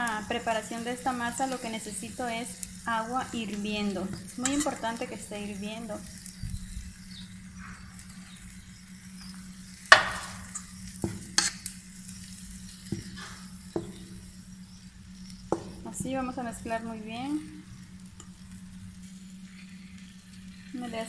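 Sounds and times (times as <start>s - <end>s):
spoon stirring dough: 4.1s - 5.2s, 9.9s - 11.7s, 12.8s - 14.2s.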